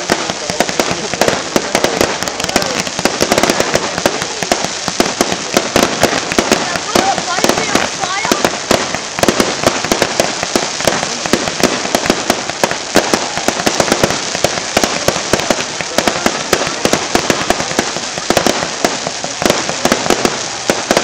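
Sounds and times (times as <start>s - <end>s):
fireworks crackling and banging: 0.0s - 21.0s.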